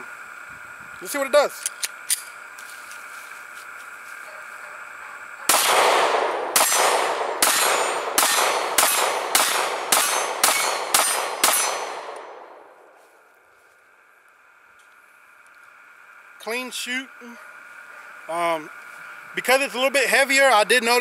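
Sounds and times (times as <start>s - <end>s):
pistol shots: 5.5s - 12.6s.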